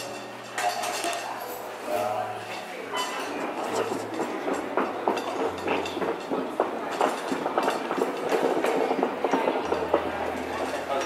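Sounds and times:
clicks and knocks on tiled floor: 3.1s - 11.0s.

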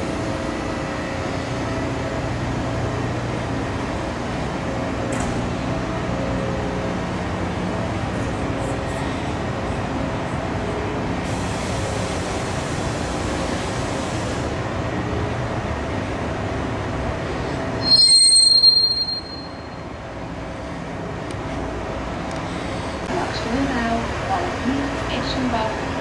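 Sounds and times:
high-pitched squeal: 17.8s - 19.8s.

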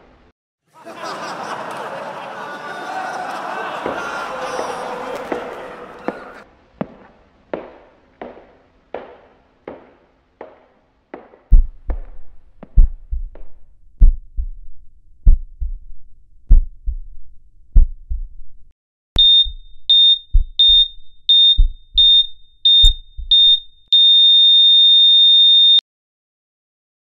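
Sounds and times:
heartbeat thumps: 11.5s - 23.6s
heart monitor beeps: 19.2s - 25.8s.

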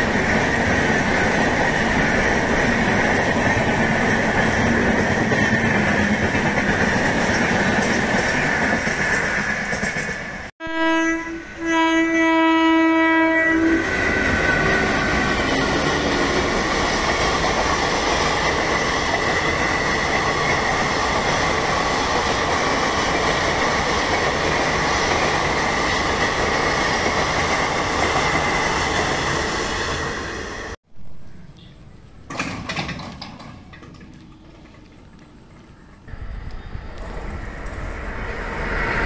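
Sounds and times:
wheels clattering on rails: 0.0s - 10.5s, 14.2s - 29.4s, 32.3s - 36.2s
train passing at speed: 0.0s - 30.8s, 33.7s - 39.0s
locomotive horn: 10.6s - 15.0s.

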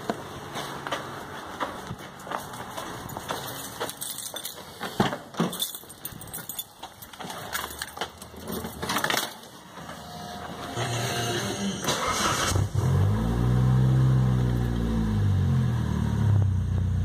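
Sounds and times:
keys jangling: 3.0s - 9.5s.

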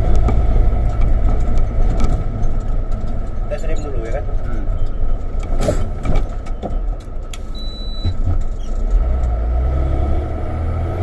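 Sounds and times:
road noise: 0.0s - 11.0s
truck diesel engine: 0.0s - 11.0s
short high beep: 7.5s - 8.2s.

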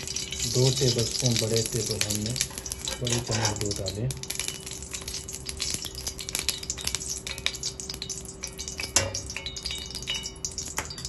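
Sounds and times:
ghee crackling in pot: 0.0s - 11.0s
metal spoon scraping pot: 2.5s - 3.8s.

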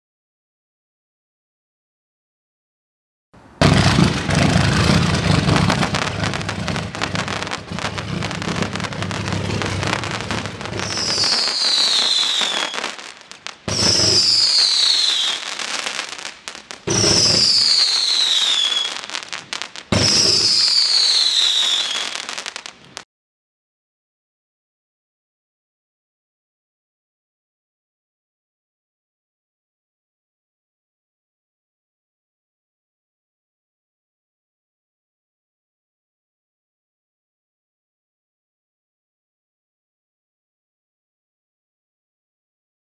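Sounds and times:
falling firework whistles: 3.6s - 23.0s
firework thumps: 3.6s - 23.0s
fireworks popping and crackling: 3.6s - 23.0s.

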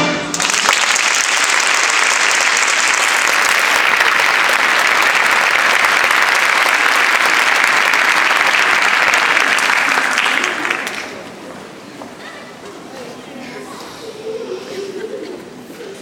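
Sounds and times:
audience applauding: 0.3s - 11.4s.

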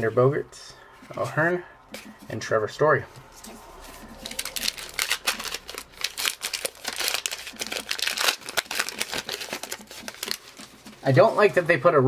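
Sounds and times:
foil wrapper crinkling and tearing: 4.1s - 11.2s.

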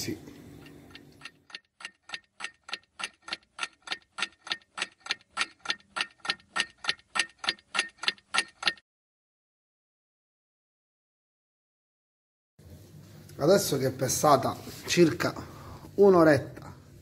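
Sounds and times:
clock ticking: 0.6s - 8.8s.

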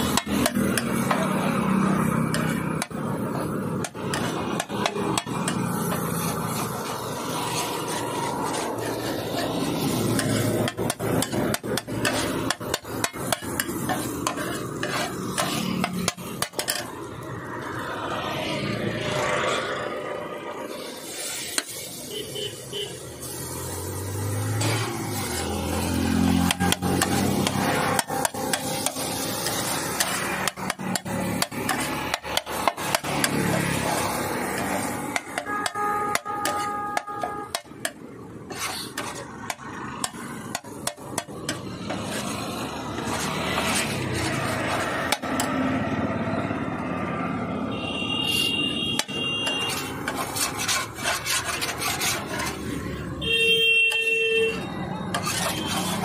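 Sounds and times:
metal spatula clanking on griddle: 0.0s - 17.0s, 26.3s - 42.3s.

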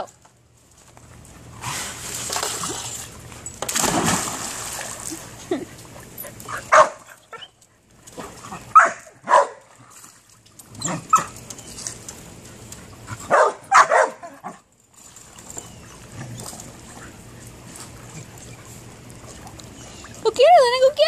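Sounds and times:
dog barking: 6.7s - 7.0s, 8.8s - 9.6s, 13.3s - 14.2s.

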